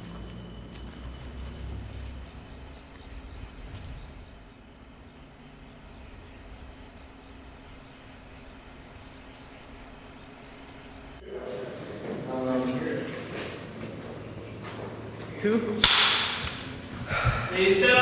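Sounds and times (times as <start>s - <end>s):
insects trilling: 0.0s - 11.2s
low steady hum: 0.0s - 12.0s.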